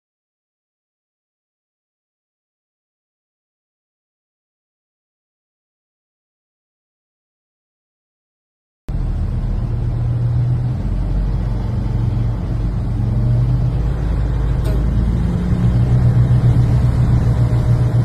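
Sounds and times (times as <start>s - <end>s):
car engine and road noise: 8.9s - 18.0s.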